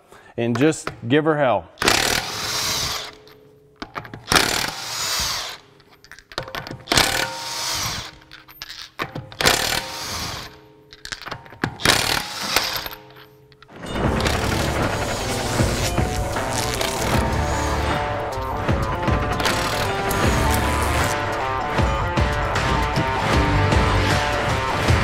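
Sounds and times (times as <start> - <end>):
impact wrench hammering: 1.8 - 5.6, 6.3 - 21.9.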